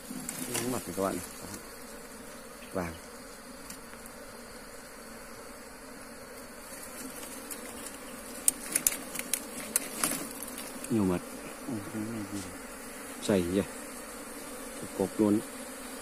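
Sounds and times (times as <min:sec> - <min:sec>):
honeybees buzzing: 0:00.0 - 0:16.0
sharp clicks and crackles: 0:07.2 - 0:10.9.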